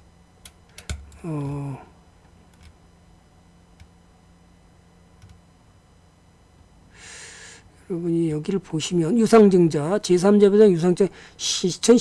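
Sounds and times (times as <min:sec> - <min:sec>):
man grunting: 0:01.2 - 0:01.9.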